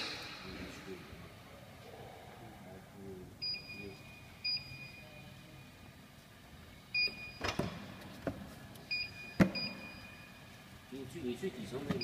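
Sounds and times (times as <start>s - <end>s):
vending machine beeps: 3.4s - 5.7s, 6.9s - 7.6s, 8.9s - 10.5s.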